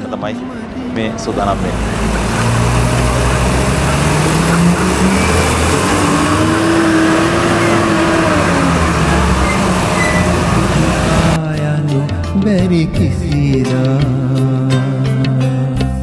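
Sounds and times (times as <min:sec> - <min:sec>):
vehicle engine and road noise: 0:00.0 - 0:11.4.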